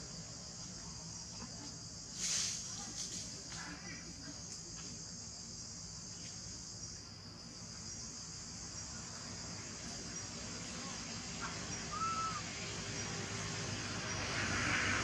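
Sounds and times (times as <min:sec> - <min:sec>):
high-pitched insect chorus: 0:00.0 - 0:15.0
call rising and falling in pitch: 0:11.9 - 0:12.4.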